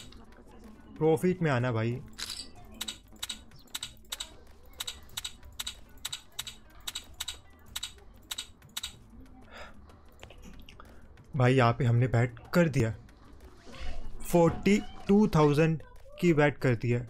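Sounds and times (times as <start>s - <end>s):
sharp clicks: 2.1s - 9.0s.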